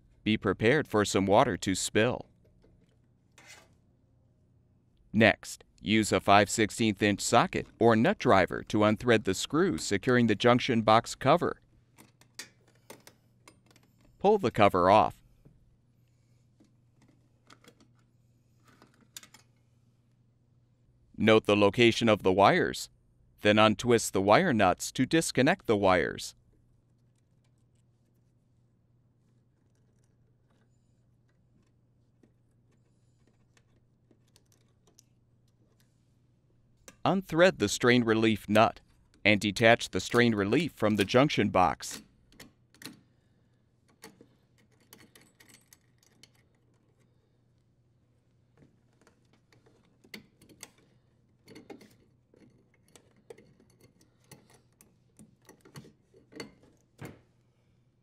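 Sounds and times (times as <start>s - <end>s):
small clicks and rustles: 29.2s - 36.0s, 43.8s - 57.5s
light clicks and small rattles: 43.8s - 47.7s.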